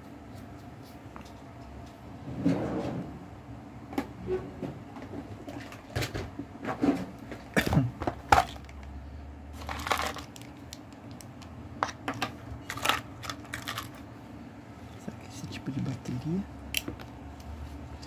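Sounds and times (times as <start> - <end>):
plastic rustle: 9.6 - 10.6.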